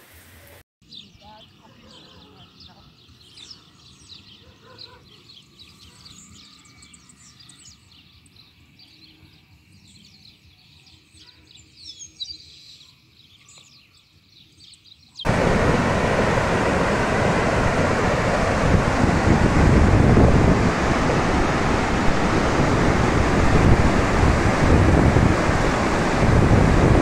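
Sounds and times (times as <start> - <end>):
birds chirping: 0.8 - 27.0
wind and rain rushing: 15.3 - 27.0.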